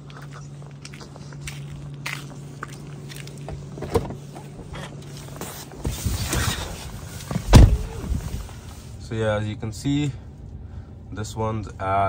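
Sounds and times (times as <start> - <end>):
low steady hum: 0.0 - 12.0
person climbing into seat: 3.4 - 8.6
car door opening: 5.7 - 8.5
car door shutting with thump: 5.8 - 8.4.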